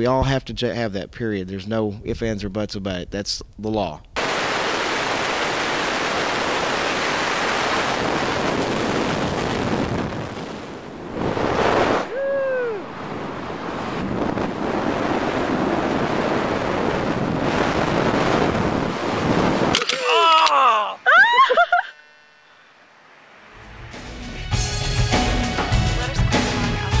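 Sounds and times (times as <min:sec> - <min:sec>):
wind rushing over microphone: 0:04.2 - 0:19.8
short cry falling in pitch: 0:19.8 - 0:22.0.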